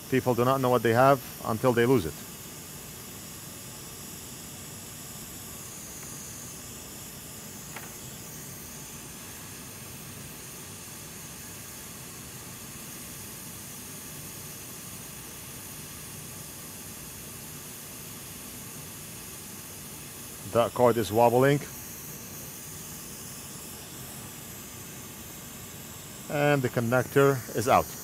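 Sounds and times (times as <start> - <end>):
hot air station hissing: 0.0 - 28.0.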